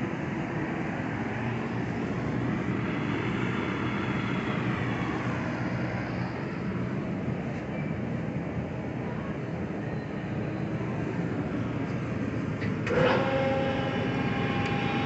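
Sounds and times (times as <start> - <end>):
machinery drone with hiss: 0.0 - 7.4, 10.6 - 15.0.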